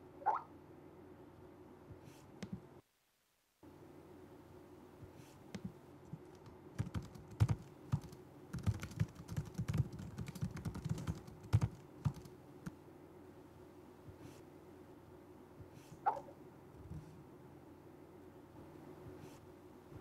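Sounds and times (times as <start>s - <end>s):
laptop keyboard typing: 5.6s - 12.8s.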